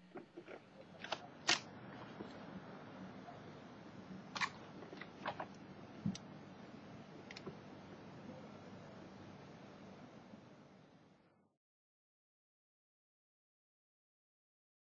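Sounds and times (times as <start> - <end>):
faint low hum: 0.0 - 11.6.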